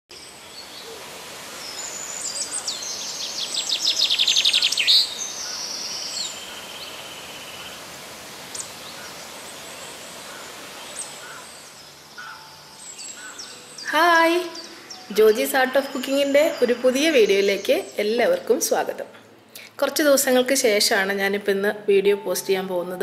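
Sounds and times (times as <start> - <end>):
steady background hiss: 0.1 - 23.0
birds chirping and whistling: 1.6 - 7.8, 10.3 - 18.2.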